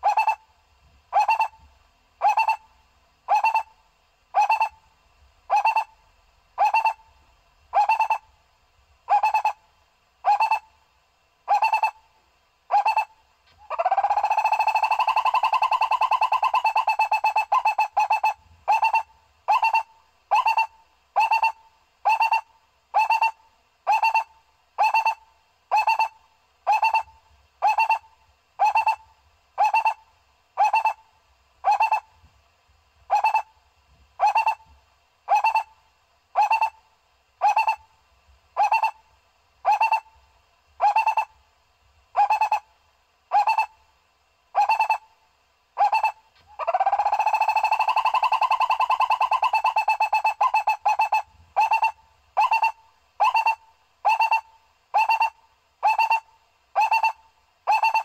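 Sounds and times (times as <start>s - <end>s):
barbet calling: 0.0s - 0.5s, 1.1s - 1.6s, 2.2s - 2.7s, 3.3s - 4.8s, 5.5s - 6.0s, 6.6s - 7.1s, 7.7s - 8.3s, 9.1s - 9.6s, 10.2s - 10.7s, 11.5s - 12.0s, 12.7s - 31.0s, 31.6s - 32.1s, 33.1s - 33.6s, 34.2s - 34.7s, 35.3s - 35.8s, 36.4s - 36.8s, 37.4s - 37.9s, 38.6s - 40.2s, 40.8s - 41.4s, 42.2s - 42.7s, 43.3s - 43.8s, 44.5s - 45.1s, 45.8s - 58.0s.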